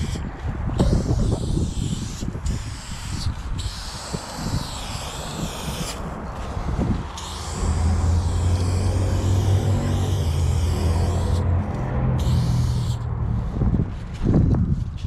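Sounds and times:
spray-paint can hissing: 0:00.8 - 0:06.0, 0:07.2 - 0:13.5
low rumble: 0:06.7 - 0:15.0.

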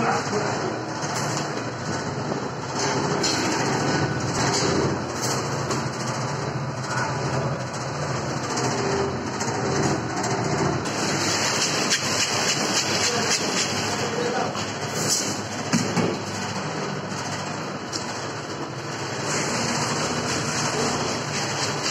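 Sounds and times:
corn thresher clattering: 0:08.4 - 0:15.2.

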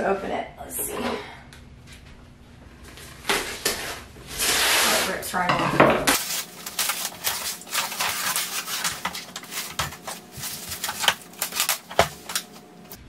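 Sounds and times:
plastic wrap rustling and crinkling: 0:06.1 - 0:13.0.

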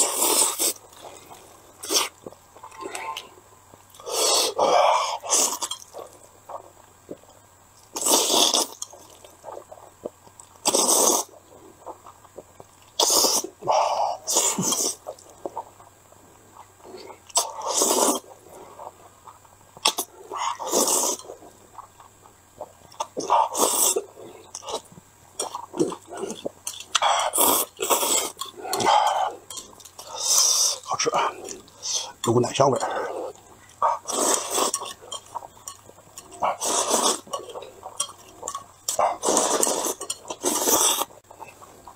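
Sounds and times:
person slurping noodles: 0:00.0 - 0:03.3, 0:03.9 - 0:06.6, 0:08.0 - 0:09.9, 0:10.6 - 0:12.1, 0:13.0 - 0:15.6, 0:16.9 - 0:18.9, 0:19.8 - 0:21.5, 0:23.0 - 0:29.4, 0:30.0 - 0:32.2, 0:32.8 - 0:35.5, 0:36.3 - 0:41.8.

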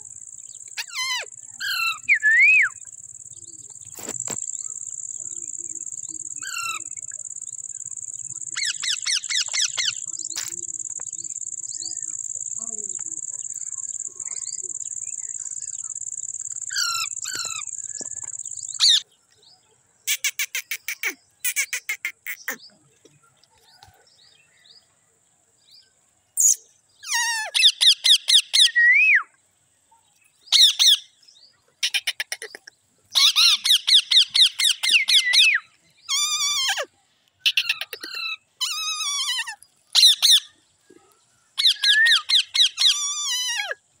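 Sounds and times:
parakeets chattering and squawking: 0:00.0 - 0:02.2, 0:02.8 - 0:19.0, 0:33.2 - 0:40.5, 0:41.6 - 0:43.7.

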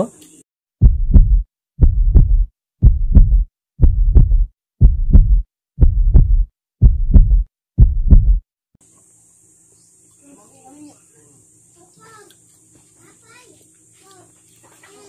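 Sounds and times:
heartbeat thumps: 0:00.8 - 0:08.4.

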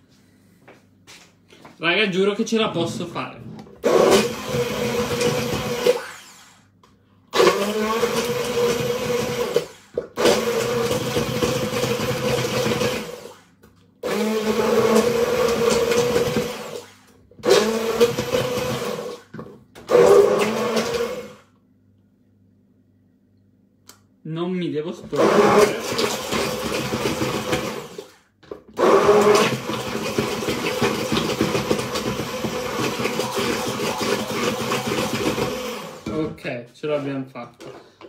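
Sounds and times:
immersion blender running: 0:02.7 - 0:06.7, 0:07.3 - 0:21.5, 0:25.1 - 0:36.2.

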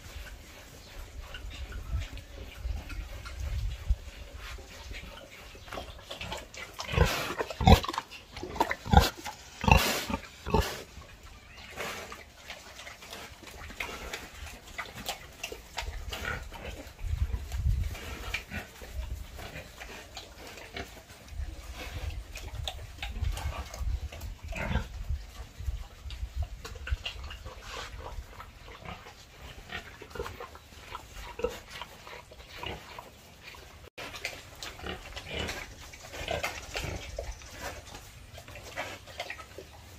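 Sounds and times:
pigs grunting and sniffing: 0:00.0 - 0:39.9.

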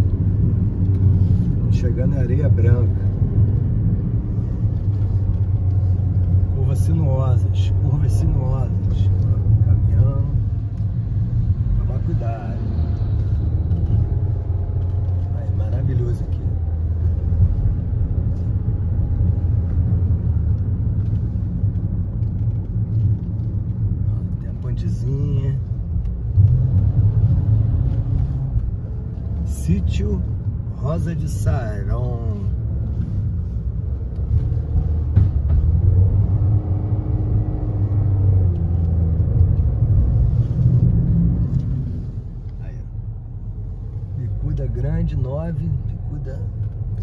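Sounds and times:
car engine and tyres rumbling: 0:00.0 - 0:47.0.

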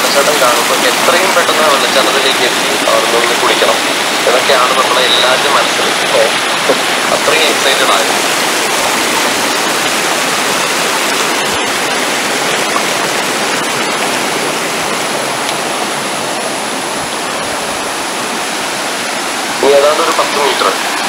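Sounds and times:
stream water rushing over stones: 0:00.0 - 0:21.0
waterfall: 0:00.0 - 0:21.0.

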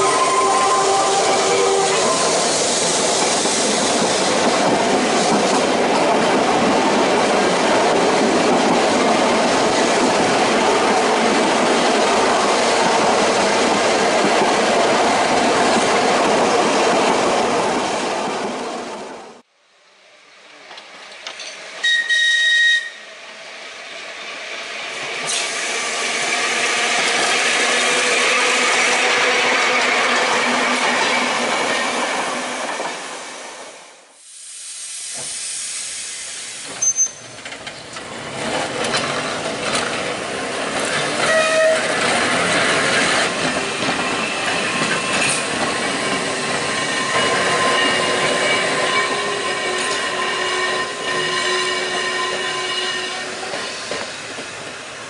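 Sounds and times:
tram whistle: 0:00.0 - 0:03.0, 0:21.8 - 0:23.2, 0:36.6 - 0:37.4, 0:41.2 - 0:42.1, 0:44.0 - 0:54.1.

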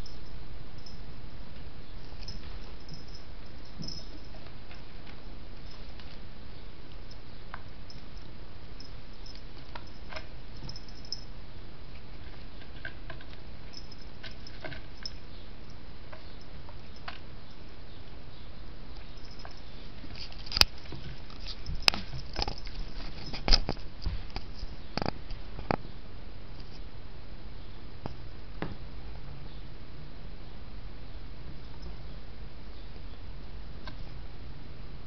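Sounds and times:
kitten paws tapping and scraping: 0:01.6 - 0:11.3, 0:11.9 - 0:17.6, 0:19.0 - 0:25.8
sharp clicks and knocks: 0:19.2 - 0:25.8.

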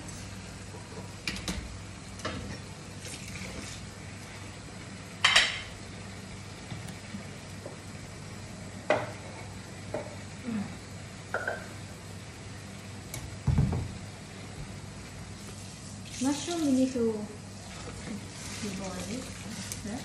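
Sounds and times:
steady low hum: 0:00.0 - 0:16.0
dishes clinking in sink: 0:11.3 - 0:11.8
spatula stirring in frying pan: 0:17.6 - 0:20.0.

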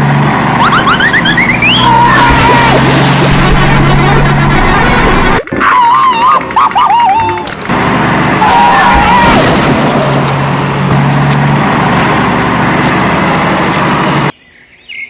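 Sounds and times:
rough vehicle engine running: 0:00.0 - 0:14.3
sharp clicks: 0:05.4 - 0:07.7.

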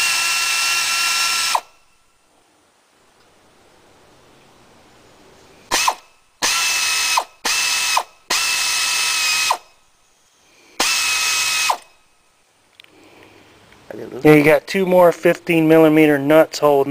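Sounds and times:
air ratchet whining: 0:00.0 - 0:01.8, 0:05.7 - 0:09.7, 0:10.8 - 0:12.0.

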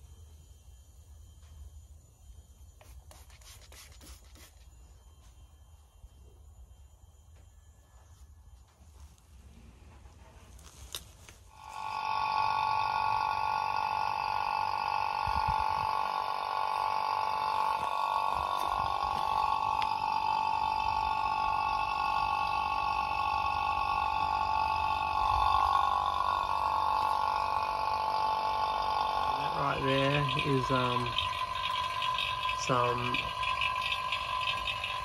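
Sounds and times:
machine whine over gurgling rumble: 0:11.5 - 0:35.0.

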